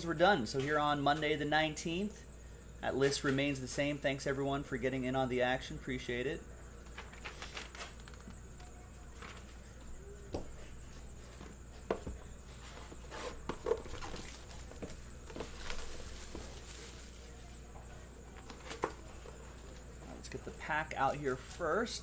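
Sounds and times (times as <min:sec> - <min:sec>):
cardboard boxes tapping and knocking: 0:11.4 - 0:16.6.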